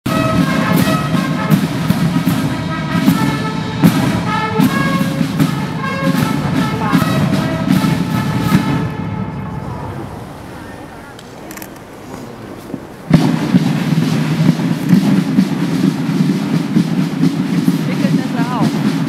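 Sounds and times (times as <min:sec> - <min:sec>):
brass fanfare: 0:00.0 - 0:11.2
side drum beats: 0:00.1 - 0:09.8, 0:11.1 - 0:19.0.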